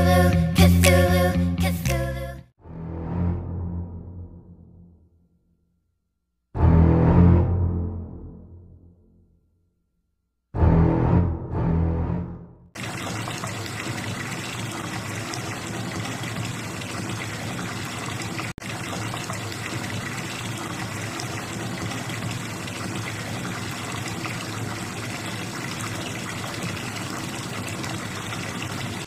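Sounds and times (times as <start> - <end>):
water running into bathtub: 12.8 - 29.0.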